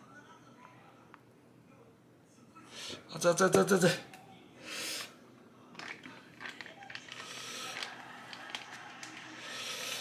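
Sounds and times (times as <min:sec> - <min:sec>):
man blowing hissing breaths: 0:09.4 - 0:10.0.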